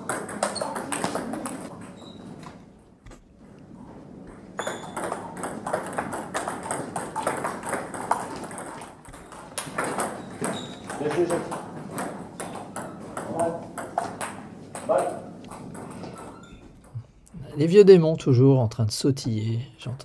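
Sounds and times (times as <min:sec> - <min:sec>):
table tennis ball clicking: 0:00.1 - 0:02.0, 0:04.6 - 0:16.9.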